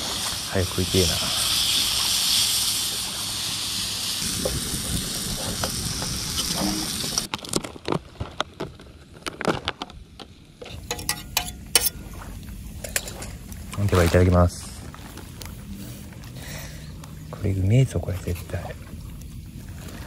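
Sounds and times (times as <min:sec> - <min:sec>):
meat sizzling in a skillet: 0:00.0 - 0:07.3
metal utensil tapping a pan: 0:10.7 - 0:12.0.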